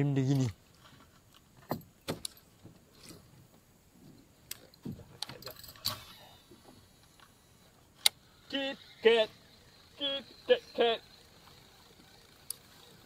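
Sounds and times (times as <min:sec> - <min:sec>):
fishing tackle clicks and rattles: 0:04.5 - 0:06.2.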